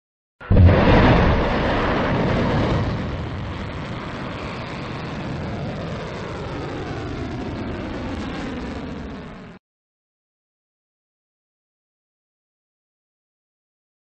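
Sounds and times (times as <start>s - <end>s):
rocket engine roar: 0.4s - 9.6s.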